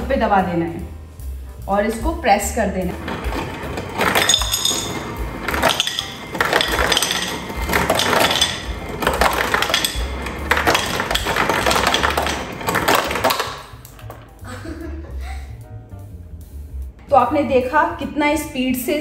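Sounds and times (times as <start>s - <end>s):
background music: 0.0s - 19.0s
ice cubes clattering into glass bowl: 3.0s - 14.2s.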